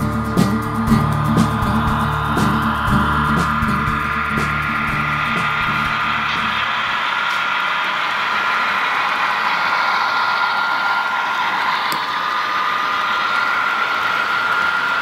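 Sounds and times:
high whine: 0:00.0 - 0:15.0
model trains whirring on rails: 0:00.0 - 0:15.0.

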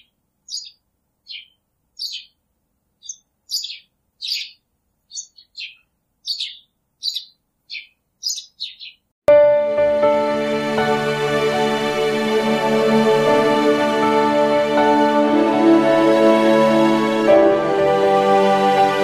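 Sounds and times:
baby chicks peeping: 0:00.0 - 0:02.4, 0:03.0 - 0:09.0.

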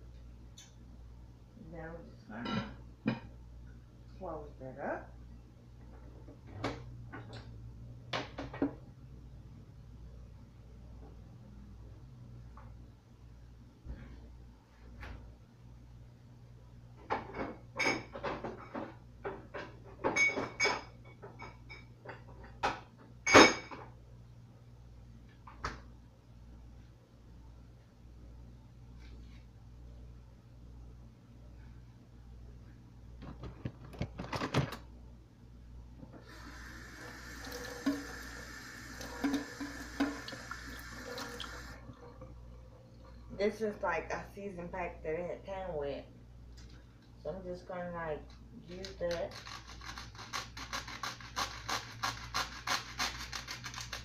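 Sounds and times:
dishes knocking and clinking: 0:17.0 - 0:23.9
tap running into metal sink: 0:37.4 - 0:38.4, 0:39.0 - 0:41.7.

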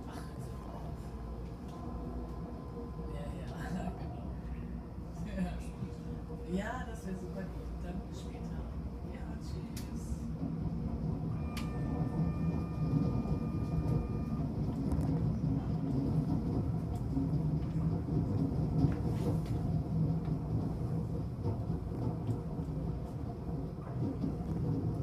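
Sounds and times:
train rumbling on rails: 0:00.0 - 0:25.0.

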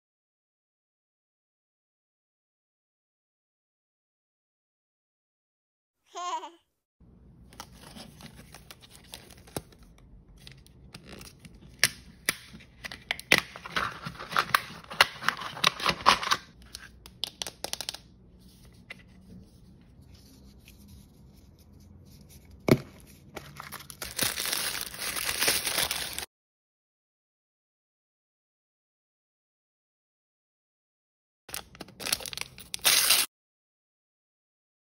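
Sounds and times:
plastic wrapper crinkling: 0:23.4 - 0:26.3, 0:31.5 - 0:33.3
sticker peeling and tearing: 0:32.8 - 0:33.3.

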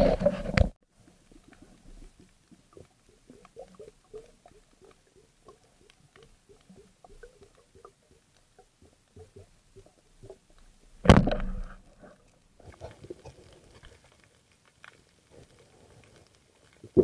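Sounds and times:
faint clicks: 0:01.0 - 0:10.7.

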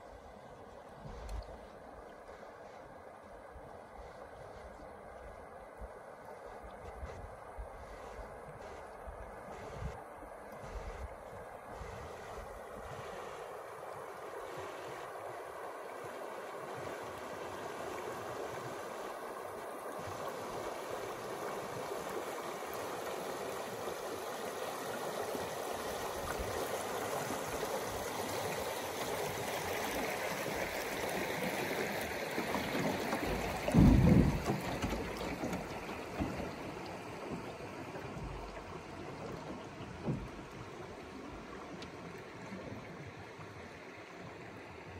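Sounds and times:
river water rushing and gurgling: 0:00.0 - 0:44.9
canoe hull scraping over rock: 0:32.3 - 0:40.8.

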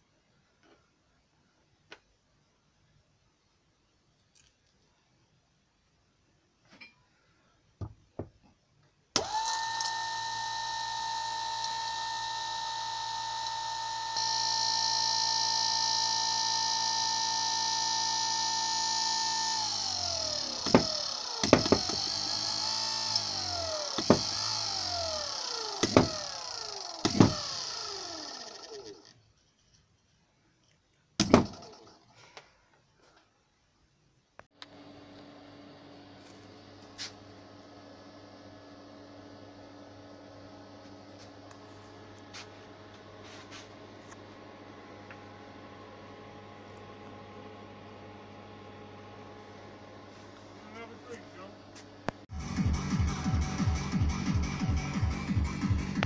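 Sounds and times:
electric motor whine: 0:09.2 - 0:29.2.

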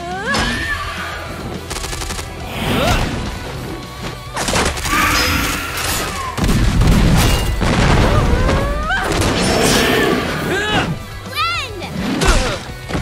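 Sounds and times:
soundtrack music: 0:00.0 - 0:13.0
rapid gunfire: 0:01.5 - 0:02.6.

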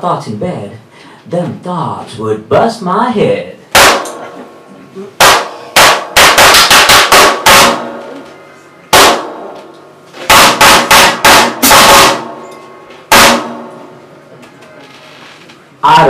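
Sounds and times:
free jazz drumming: 0:10.2 - 0:12.3.

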